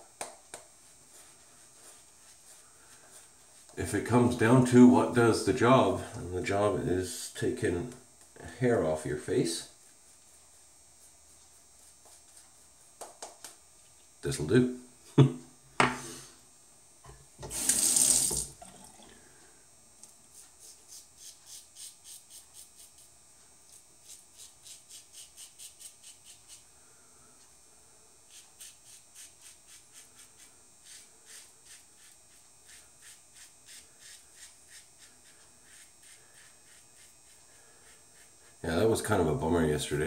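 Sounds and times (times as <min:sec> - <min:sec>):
tap running: 0:17.0 - 0:19.1
razor scraping stubble: 0:20.3 - 0:26.7, 0:28.3 - 0:39.3.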